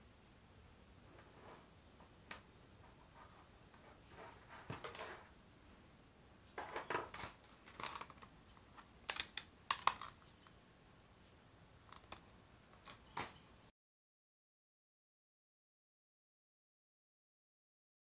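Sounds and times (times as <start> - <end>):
cable rustling and clicking: 6.5 - 10.6, 11.9 - 13.4
plastic pack crackling: 6.6 - 10.3.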